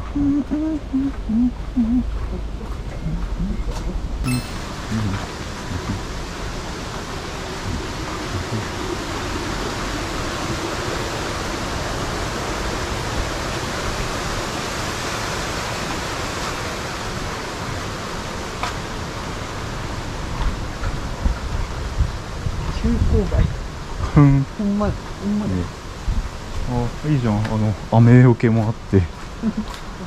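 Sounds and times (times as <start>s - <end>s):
strong wind blowing: 3.9s - 15.1s.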